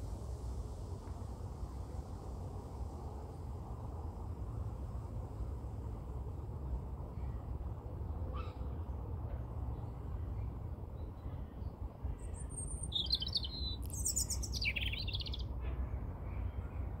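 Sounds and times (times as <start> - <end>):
robin singing trills and whistles: 12.2 - 15.5.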